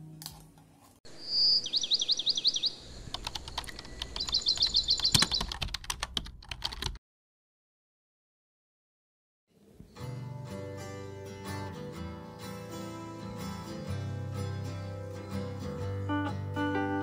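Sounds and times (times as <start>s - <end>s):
bird chirping trills: 1.1s - 5.6s
keyboard typing clicks: 3.1s - 7.0s.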